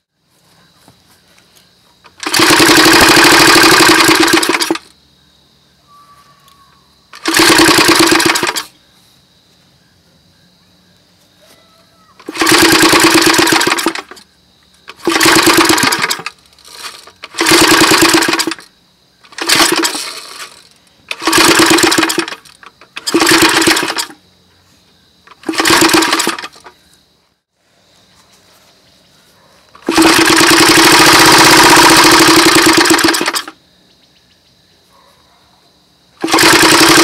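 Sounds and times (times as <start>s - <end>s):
small engine firing and dying: 2.1s - 4.9s, 7.1s - 8.7s, 12.2s - 14.2s, 14.9s - 18.7s, 19.3s - 24.2s, 25.3s - 26.7s, 29.8s - 33.6s, 36.2s - 37.0s.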